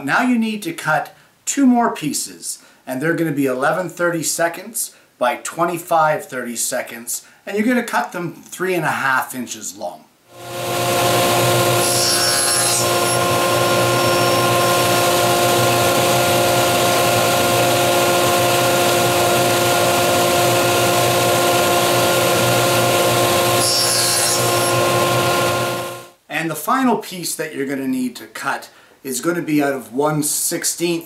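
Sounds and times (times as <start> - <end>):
table saw cutting wood: 10.4 - 26.1.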